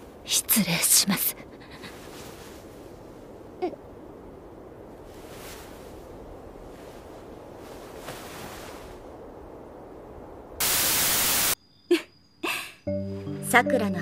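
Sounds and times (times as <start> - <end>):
static hiss burst: 10.6 - 11.6.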